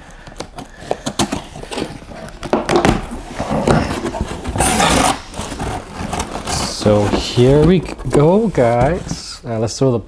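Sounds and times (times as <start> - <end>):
cardboard box being pulled open: 3.3 - 9.3.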